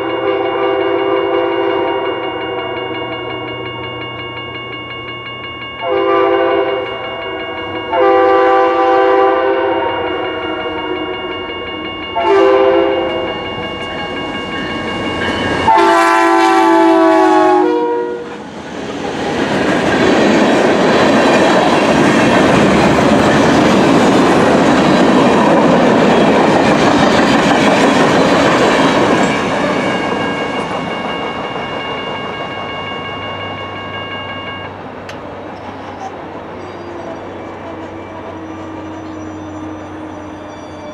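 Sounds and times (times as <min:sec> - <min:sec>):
train air horn blasts: 0:00.0 - 0:02.8, 0:05.8 - 0:06.9, 0:07.9 - 0:11.1, 0:12.2 - 0:13.3, 0:15.6 - 0:18.4
freight train cars rolling past: 0:00.0 - 0:40.9.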